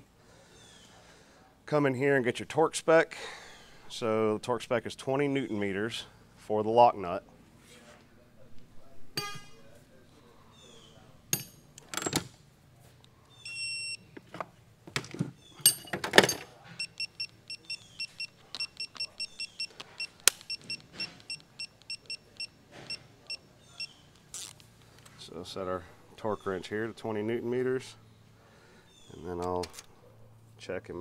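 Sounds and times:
torque wrench beeps: 13.3s - 14.0s, 16.8s - 24.0s
metal tools clattering in toolbox: 15.6s - 16.6s.

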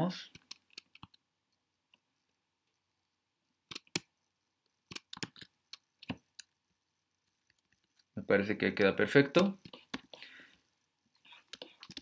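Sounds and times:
mouse and keyboard clicks: 0.3s - 1.2s, 3.7s - 4.1s, 4.9s - 6.5s, 11.3s - 12.0s.

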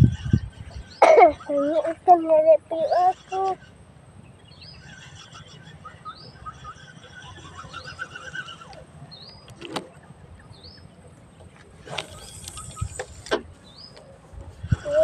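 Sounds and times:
low rumble on microphone: 0.0s - 1.0s, 14.2s - 15.0s.

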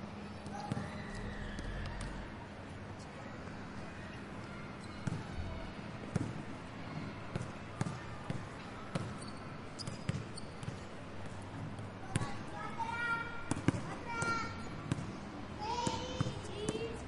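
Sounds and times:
children's voices: 12.0s - 14.7s, 15.5s - 17.0s.

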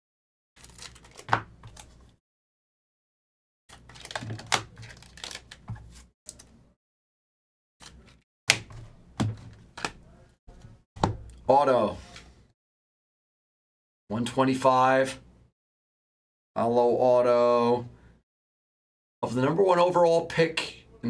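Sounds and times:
trading cards shuffled and flicked: 0.6s - 2.2s, 3.7s - 6.6s, 7.8s - 11.3s.

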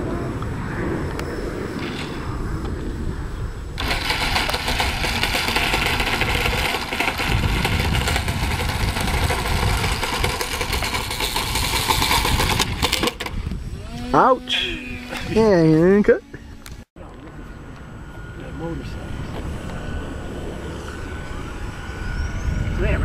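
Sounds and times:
low rumbling: 0.0s - 23.0s
model plane motor whining: 3.8s - 16.8s, 17.8s - 23.0s.

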